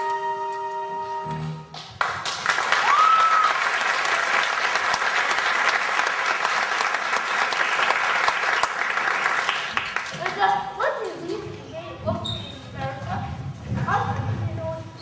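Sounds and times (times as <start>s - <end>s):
audience applauding: 1.7s - 10.5s.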